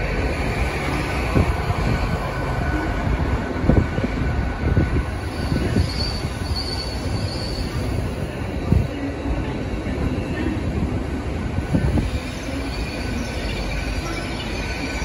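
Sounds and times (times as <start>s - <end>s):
train wheels rumbling: 0.0s - 15.0s
high wheel squeal: 5.2s - 8.3s.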